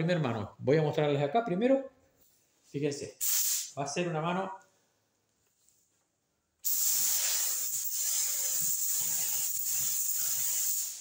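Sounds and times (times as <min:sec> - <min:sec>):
spray gun hissing: 0:03.2 - 0:03.7, 0:06.6 - 0:11.0.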